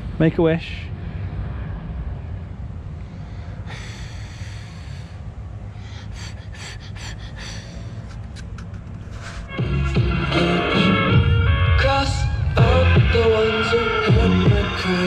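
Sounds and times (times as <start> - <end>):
low steady rumble: 0.0 - 15.0
child blowing puffs of breath: 3.0 - 9.6.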